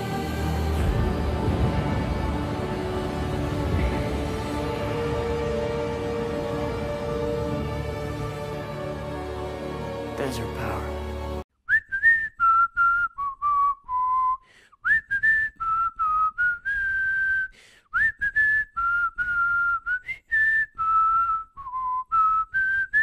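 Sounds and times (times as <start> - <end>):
person whistling a tune: 11.6 - 23.0.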